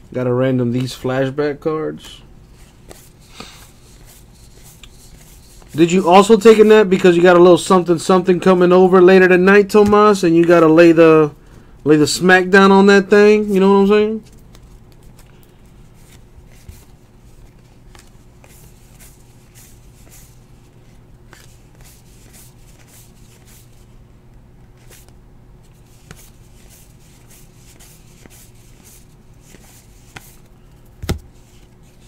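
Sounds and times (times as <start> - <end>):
steady low hum: 0.0 - 32.0
cards flicking and rustling: 2.0 - 6.7, 13.4 - 23.9, 24.7 - 32.0.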